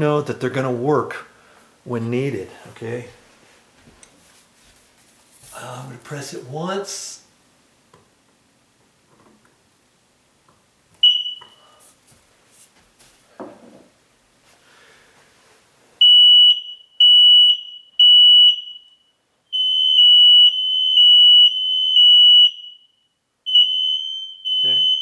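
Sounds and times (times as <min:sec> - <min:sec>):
high-pitched alarm beeps: 0:11.0 - 0:11.8, 0:16.0 - 0:25.0
smoke alarm chirp: 0:11.0 - 0:11.8, 0:16.0 - 0:25.0.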